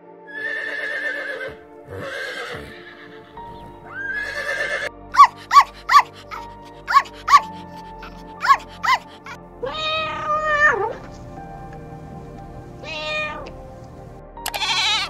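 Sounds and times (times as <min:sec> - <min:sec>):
background music: 0:00.0 - 0:15.0
horse whinnying: 0:00.3 - 0:07.4, 0:12.8 - 0:13.5, 0:14.4 - 0:15.0
small dog yipping: 0:05.2 - 0:07.5, 0:08.1 - 0:09.1.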